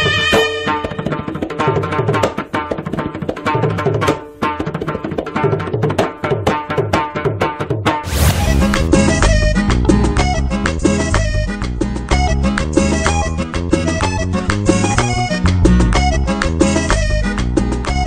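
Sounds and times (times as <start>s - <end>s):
music with fast drum strokes: 0.8s - 14.1s
swell of noise: 8.0s - 9.7s.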